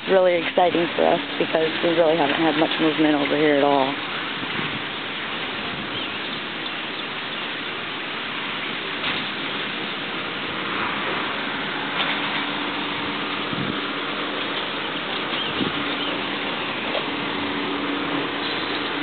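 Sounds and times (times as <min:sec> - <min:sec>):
faint low engine hum: 0:00.0 - 0:19.0
steady outdoor hiss: 0:00.0 - 0:19.0.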